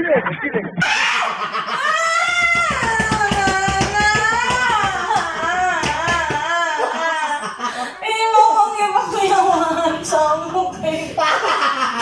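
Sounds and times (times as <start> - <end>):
high-pitched wailing cry: 0.8 - 7.4.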